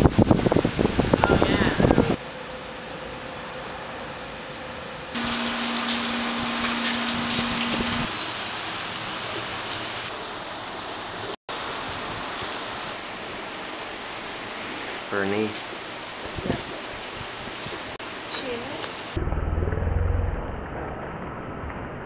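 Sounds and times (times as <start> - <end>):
steady rain falling: 5.1 - 19.2.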